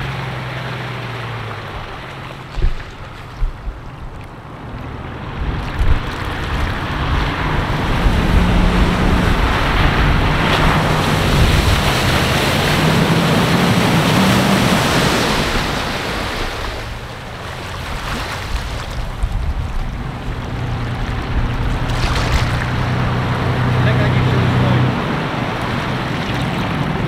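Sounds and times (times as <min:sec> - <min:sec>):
engine working under load: 0:00.0 - 0:27.0
loud rushing noise: 0:05.7 - 0:17.0.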